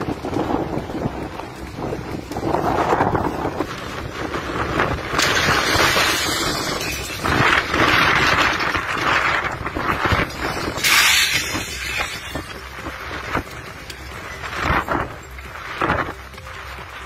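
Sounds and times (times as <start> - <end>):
storm wind buffeting microphone: 0.0 - 16.3.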